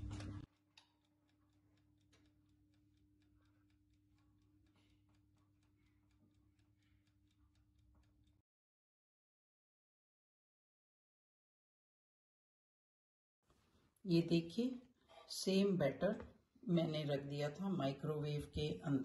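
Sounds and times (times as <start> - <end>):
oven hum: 0.0 - 0.5
rapid mechanical timer ticking: 0.0 - 8.4.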